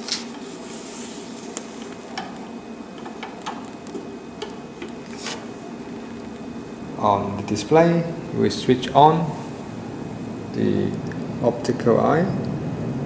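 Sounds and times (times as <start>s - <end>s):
paper rustling: 0.0s - 2.0s, 5.0s - 5.5s.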